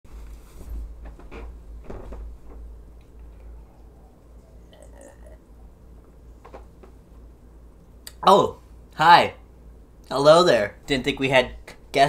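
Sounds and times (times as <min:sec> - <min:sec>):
soft knocks and rustles: 0:00.1 - 0:03.4, 0:06.4 - 0:07.0
low steady hum: 0:00.1 - 0:12.0
man gulping a drink: 0:03.2 - 0:05.8.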